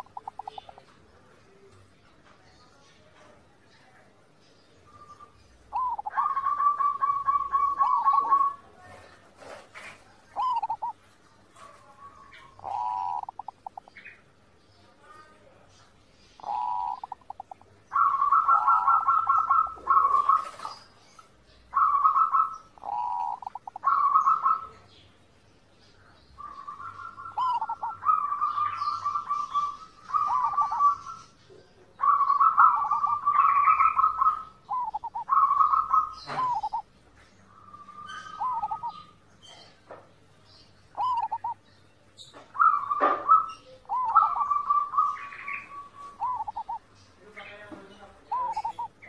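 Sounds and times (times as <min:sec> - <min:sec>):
dove cooing in trills: 0:00.0 - 0:00.9, 0:05.1 - 0:09.0, 0:09.9 - 0:14.2, 0:16.4 - 0:24.9, 0:26.4 - 0:31.3, 0:32.0 - 0:36.9, 0:37.5 - 0:39.7, 0:40.9 - 0:41.7, 0:42.5 - 0:46.9, 0:48.2 - 0:49.0.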